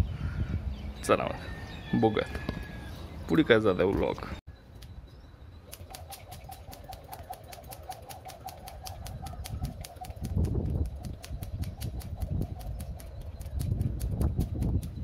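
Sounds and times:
wind on microphone: 0.0s - 2.9s, 6.2s - 15.0s
skipping rope slapping tiled floor: 5.7s - 15.0s.

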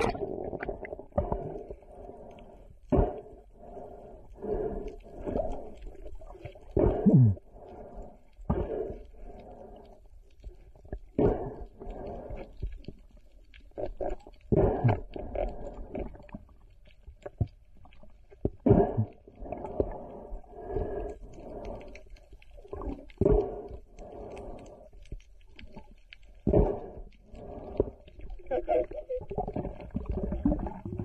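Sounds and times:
underwater water swooshes: 0.0s - 1.8s.

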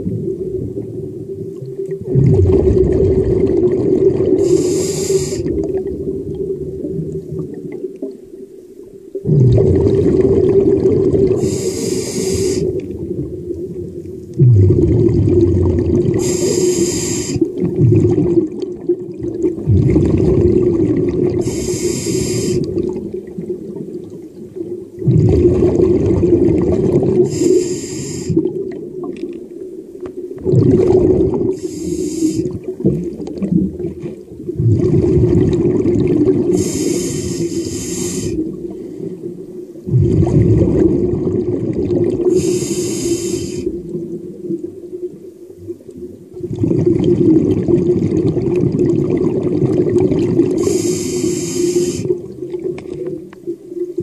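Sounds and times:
exhaled bubbles: 0.0s - 8.4s, 9.1s - 54.0s
diver breathing through regulator: 4.3s - 5.6s, 11.3s - 12.9s, 16.1s - 17.5s, 21.4s - 22.8s, 27.2s - 28.5s, 31.5s - 32.6s, 36.5s - 39.1s, 42.2s - 43.8s, 50.5s - 52.2s.

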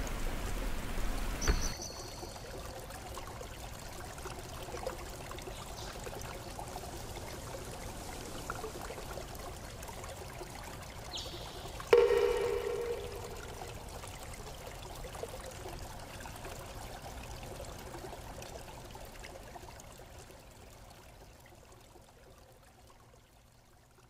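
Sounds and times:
brief high tone: 12.0s - 13.9s.

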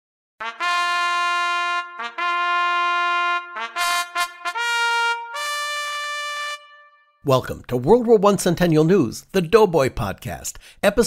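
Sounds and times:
solo brass horn call: 0.4s - 7.2s.

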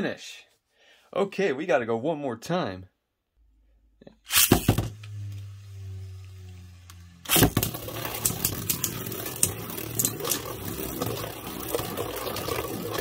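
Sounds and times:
spinning tops scraping and clacking: 4.3s - 4.8s, 7.3s - 13.0s
spinning top cracking into bowl: 4.3s - 5.3s, 6.9s - 13.0s
spinning top hum: 4.3s - 13.0s.

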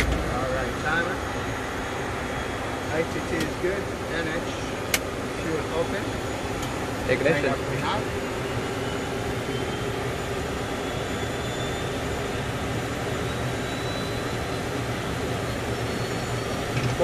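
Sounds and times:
high whine rising in pitch: 0.0s - 4.4s
turboprop engine rumble: 0.0s - 17.0s.

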